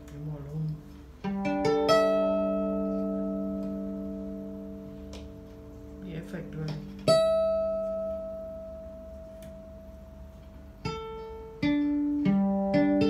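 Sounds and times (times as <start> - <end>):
electric violin strings plucked: 0.0 - 13.0.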